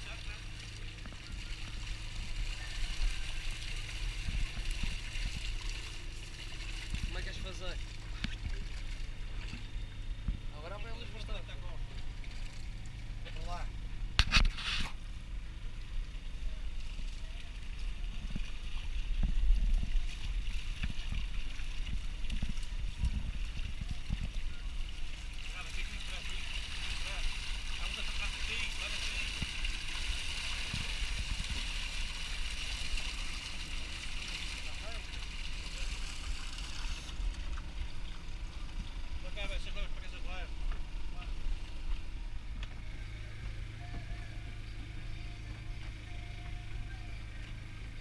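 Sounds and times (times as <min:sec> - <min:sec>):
steady low hum: 0:00.0 - 0:48.0
steady low rumble: 0:00.0 - 0:48.0
fish thrashing in water: 0:16.1 - 0:39.2.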